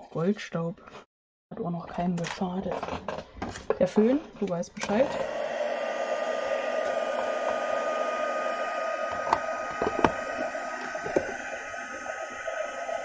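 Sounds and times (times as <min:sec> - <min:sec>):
heat tool blowing air: 0:04.8 - 0:13.0
heat tool fan whining: 0:04.8 - 0:13.0.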